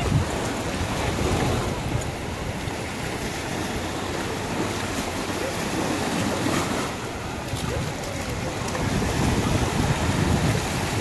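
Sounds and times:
small waves washing on shore: 0.0 - 11.0
wind buffeting microphone: 0.0 - 11.0.

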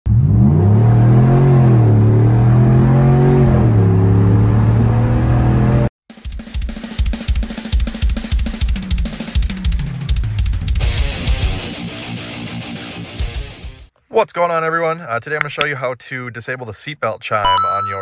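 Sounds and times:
fast heavy rock drums: 6.1 - 13.8.

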